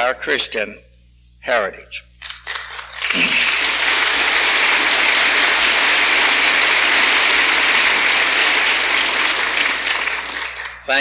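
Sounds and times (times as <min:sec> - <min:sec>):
audience applauding: 0:02.2 - 0:10.9.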